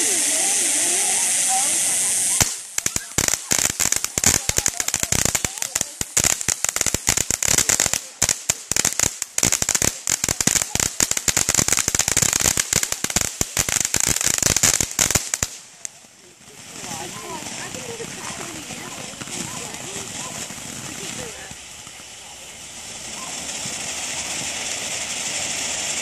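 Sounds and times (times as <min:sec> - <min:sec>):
firework crackling: 0:00.0 - 0:26.0
firework sparks hissing: 0:00.0 - 0:26.0.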